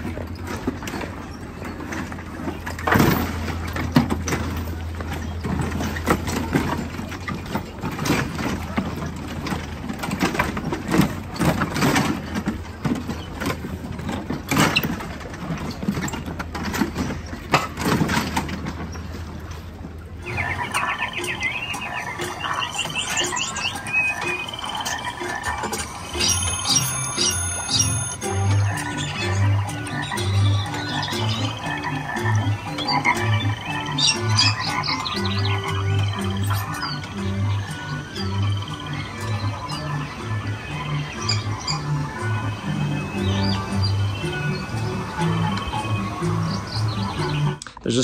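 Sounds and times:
clacks knocks and squeals: 0.0s - 46.7s
ride vehicle humming: 0.0s - 47.8s
short high chirps: 20.3s - 28.6s.

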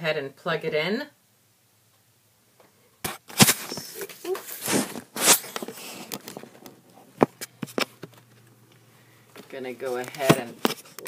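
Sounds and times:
camera handling rustling: 3.1s - 8.5s, 9.4s - 11.0s.

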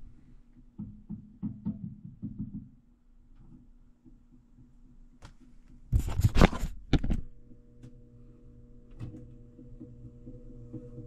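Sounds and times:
motor humming: 7.3s - 11.0s.

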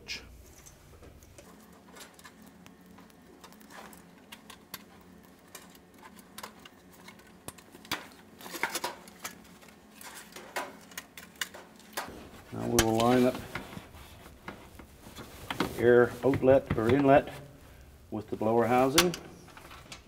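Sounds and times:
hands rustling: 12.1s - 17.7s.

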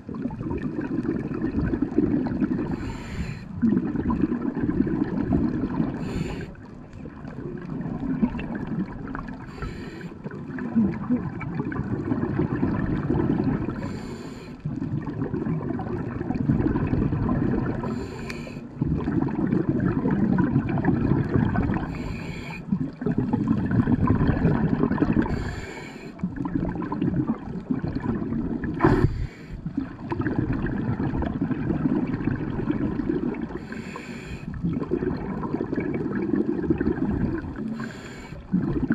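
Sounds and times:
exhaust bubbling underwater: 0.0s - 38.9s
regulator inhale hiss: 2.7s - 3.6s, 6.0s - 6.6s, 9.5s - 10.3s, 13.8s - 14.7s, 17.8s - 18.7s, 21.9s - 22.7s, 25.2s - 26.2s, 28.8s - 29.7s, 33.6s - 34.6s, 37.7s - 38.5s.

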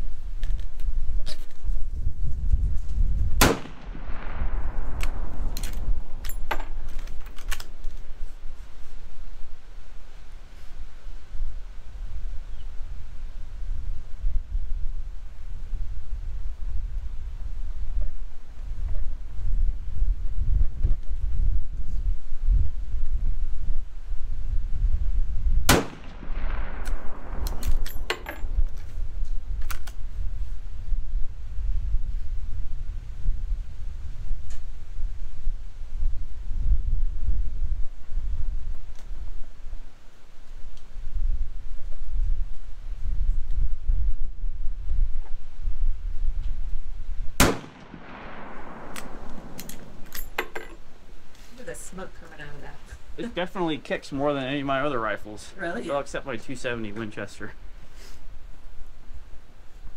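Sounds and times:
wind rumbling on microphone: 0.0s - 59.9s
rifle shot echoing: 3.4s - 6.9s, 25.7s - 28.6s, 47.4s - 50.6s
rifle lever metallic clicks: 48.9s - 50.8s.

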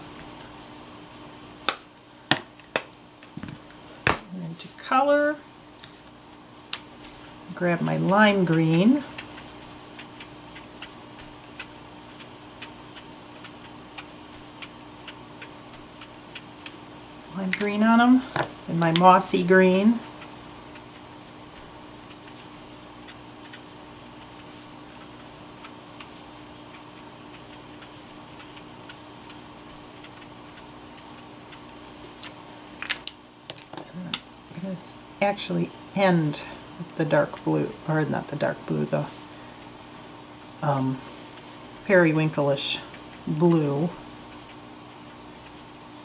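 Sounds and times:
faint steady hum: 0.0s - 46.0s.

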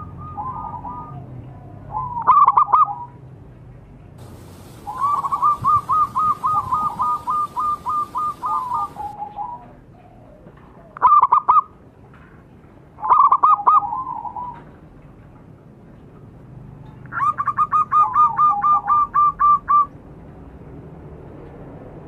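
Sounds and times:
dove cooing: 0.0s - 3.1s, 4.2s - 11.7s, 13.0s - 14.7s, 17.1s - 19.9s.

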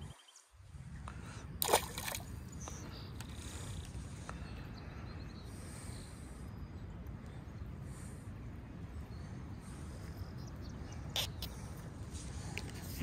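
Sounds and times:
fish splashing into water: 1.6s - 2.3s.

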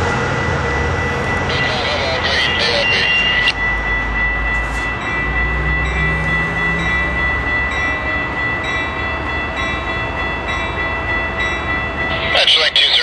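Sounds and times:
diesel locomotive engine rumble: 0.0s - 13.0s
high-pitched ringing tone: 1.3s - 5.2s.

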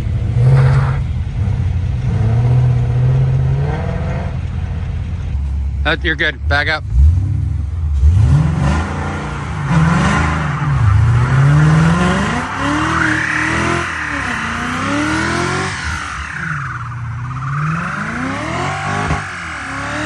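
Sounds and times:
car engine revving: 0.0s - 20.0s
tyres squealing: 9.7s - 20.0s.

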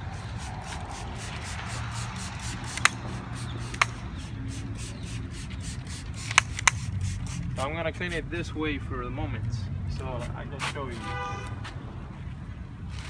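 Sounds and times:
spray bottle spritzing: 0.2s - 7.6s.

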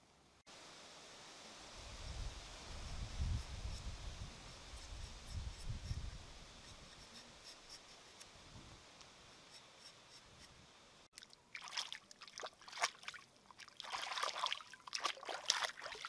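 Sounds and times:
faint hiss: 0.0s - 11.6s
water splashing and trickling: 11.0s - 16.0s.

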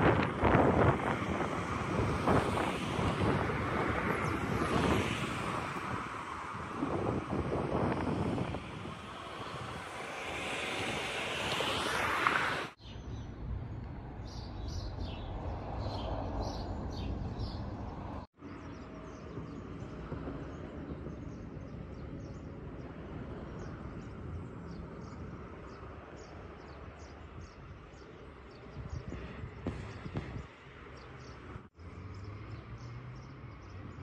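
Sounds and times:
distant road traffic rumble: 0.0s - 34.0s
small birds chirping: 12.8s - 34.0s.

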